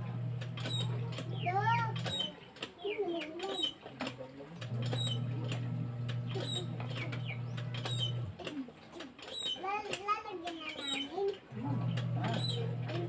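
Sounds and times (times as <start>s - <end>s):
birds chirping: 0.7s - 3.9s, 4.9s - 8.4s.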